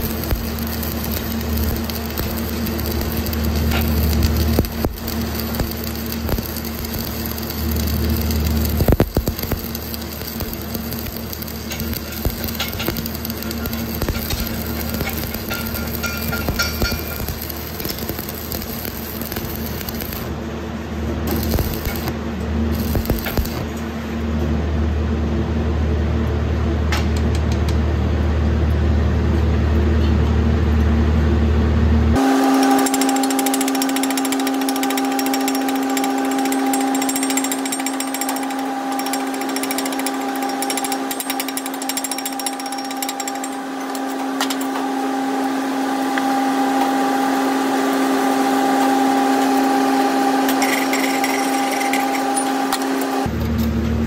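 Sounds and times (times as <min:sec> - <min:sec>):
chipping hammer tapping: 0:00.0 - 0:20.3, 0:21.3 - 0:22.1, 0:22.8 - 0:23.6
welding arc burning: 0:00.0 - 0:24.3, 0:32.2 - 0:54.0
low welder hum: 0:00.0 - 0:54.0.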